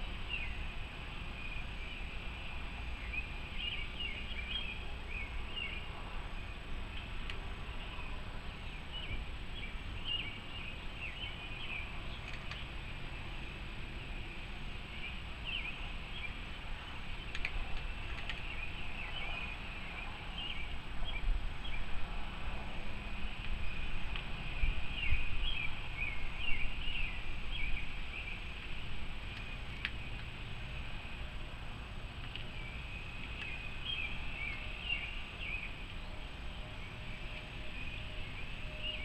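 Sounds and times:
small birds chirping: 0:00.0 - 0:22.0, 0:22.7 - 0:31.3, 0:32.0 - 0:39.0
low outdoor rumble: 0:00.0 - 0:39.0
faint clicks: 0:12.2 - 0:12.7, 0:17.3 - 0:18.5.

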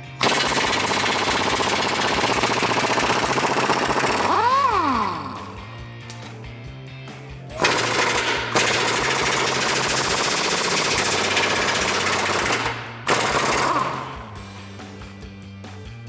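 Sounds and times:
pneumatic impact wrench hammering: 0:00.0 - 0:05.6, 0:07.6 - 0:14.4.

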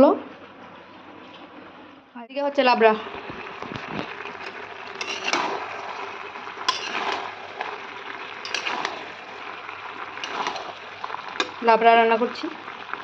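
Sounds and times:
vegetables sizzling: 0:02.4 - 0:13.0
spatula scraping and knocking pan: 0:04.3 - 0:05.8, 0:06.6 - 0:07.4, 0:08.4 - 0:09.2, 0:10.2 - 0:11.6.

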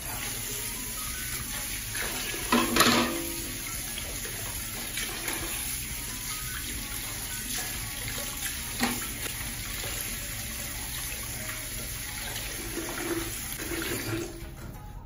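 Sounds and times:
tap water splashing into bowl: 0:02.1 - 0:03.6, 0:07.6 - 0:09.4.

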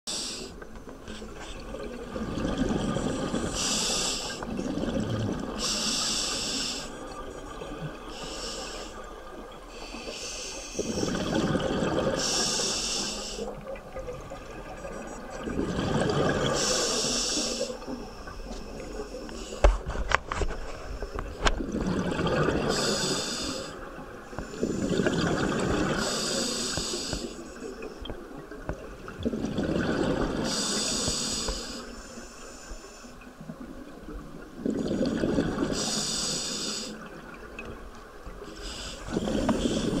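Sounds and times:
diver breathing through regulator: 0:12.1 - 0:13.5, 0:22.6 - 0:23.8, 0:26.0 - 0:27.5, 0:30.4 - 0:33.1, 0:35.7 - 0:37.0, 0:38.5 - 0:40.0.

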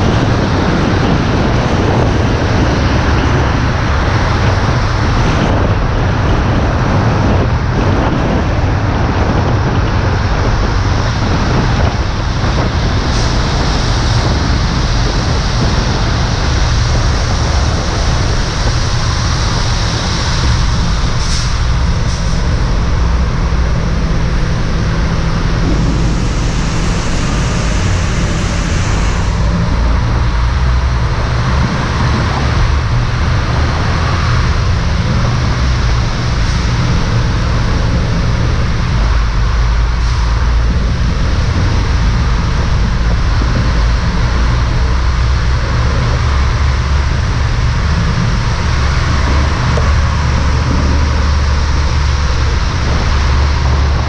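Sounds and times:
passing traffic: 0:00.0 - 0:54.0
wind rumble on microphone: 0:00.0 - 0:54.0
tyre hiss on wet road: 0:18.9 - 0:22.7.

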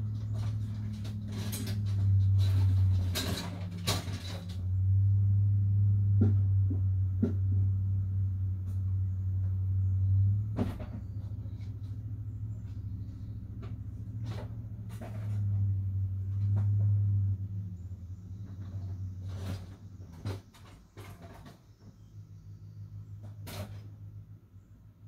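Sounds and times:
wooden items knocking and clattering: 0:00.0 - 0:04.7
steady low hum: 0:00.0 - 0:25.0.

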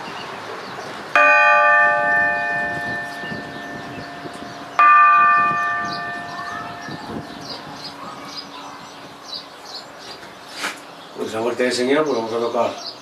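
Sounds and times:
church bell ringing: 0:01.1 - 0:08.8.

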